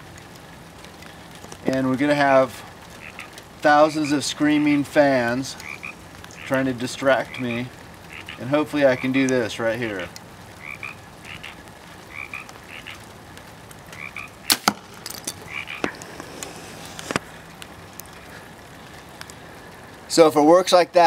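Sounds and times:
frogs croaking: 1.0s - 19.7s
bow shot sharp crack: 14.5s - 15.0s.

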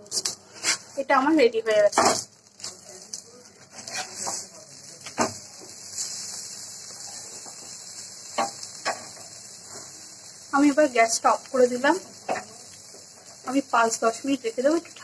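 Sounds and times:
spatula scraping frying pan: 0.0s - 1.1s, 3.6s - 10.0s
faint sizzle: 0.0s - 15.0s.

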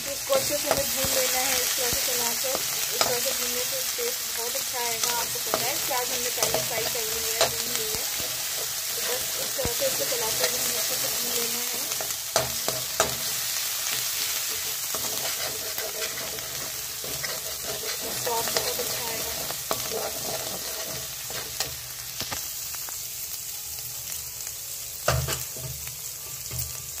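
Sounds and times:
paste sizzling in hot oil: 0.0s - 27.0s
spoon scraping pan: 14.0s - 21.8s.

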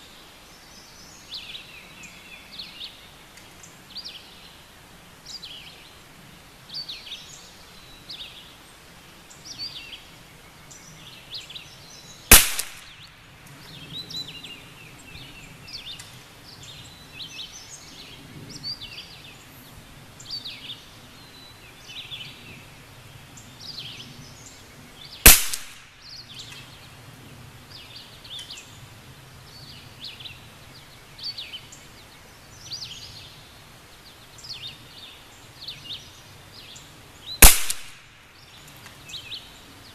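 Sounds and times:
birds chirping: 0.0s - 39.9s
rifle shots: 12.3s - 13.0s, 25.3s - 26.0s, 37.4s - 38.2s.

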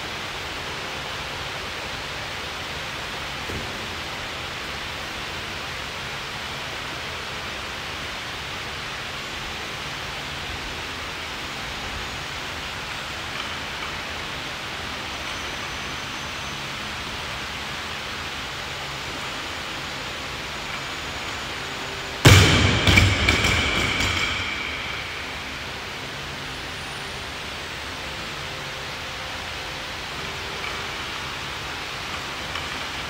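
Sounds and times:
electric fan air hiss: 0.0s - 33.0s.

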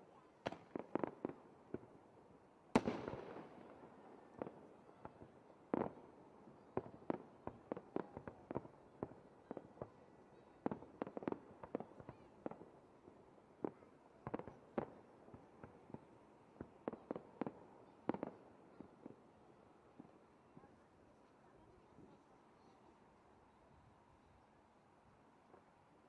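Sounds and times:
fireworks bangs: 2.7s - 6.0s.

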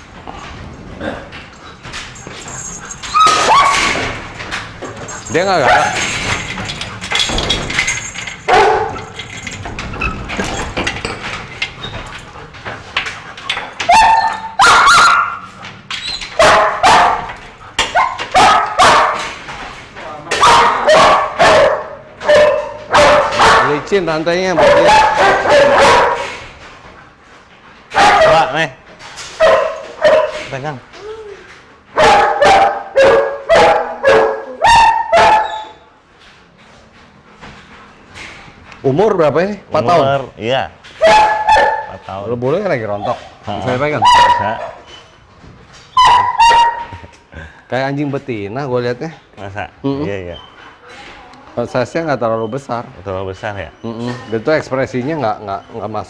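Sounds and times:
dogs barking: 1.7s - 9.6s, 12.0s - 19.5s, 20.2s - 26.6s, 27.8s - 28.6s, 29.3s - 30.5s, 31.8s - 35.9s, 40.9s - 45.2s, 46.0s - 47.3s.

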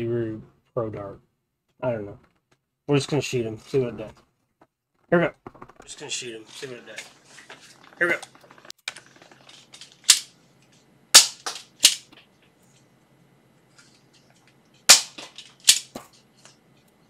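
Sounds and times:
toy dart blaster snapping and firing: 11.2s - 12.1s, 14.9s - 16.0s.

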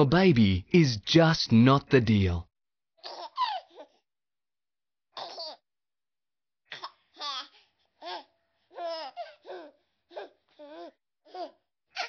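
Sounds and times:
baby babbling and cooing: 3.0s - 4.0s, 5.2s - 5.6s, 6.7s - 12.0s.

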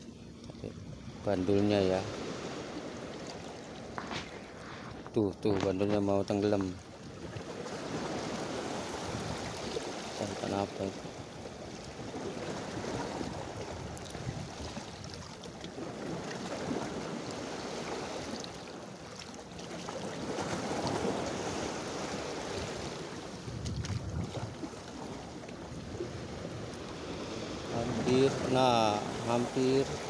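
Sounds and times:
sea water sloshing around rocks: 2.0s - 30.0s
wind on microphone: 8.0s - 9.7s, 12.8s - 15.2s, 22.4s - 30.0s.

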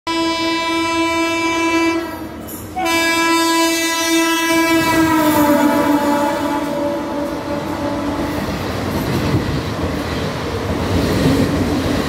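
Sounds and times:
locomotive horn blasts: 0.1s - 8.6s
train rumble: 0.9s - 12.0s.

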